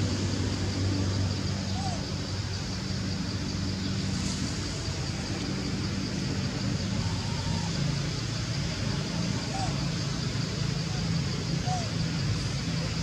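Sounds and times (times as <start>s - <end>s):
high hiss: 2.1s - 8.9s.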